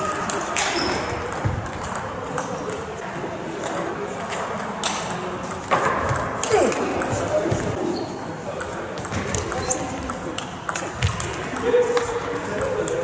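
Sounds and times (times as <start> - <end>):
table tennis ball clicking: 0.1 - 2.9, 8.6 - 11.7.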